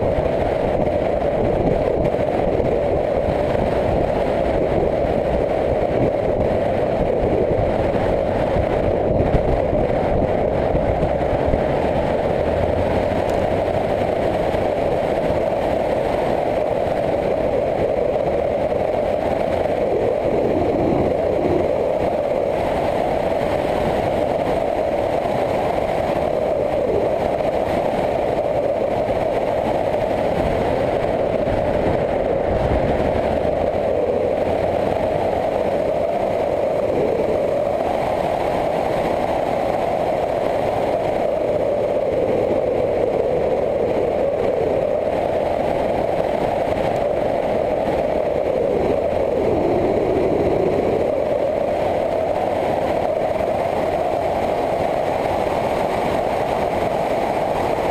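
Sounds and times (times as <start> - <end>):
motorcycle engine cruising: 0.0 - 22.3
wind and road noise: 0.0 - 57.9.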